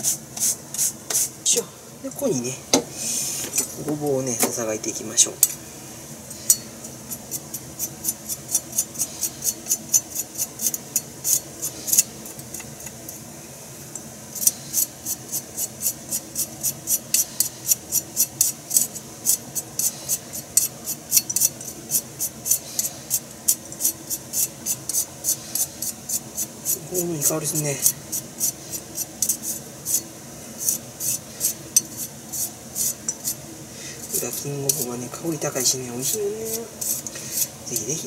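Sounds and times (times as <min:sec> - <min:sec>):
knife scraping root: 0:14.4 - 0:30.0, 0:30.6 - 0:33.4, 0:34.0 - 0:35.0, 0:35.6 - 0:38.0.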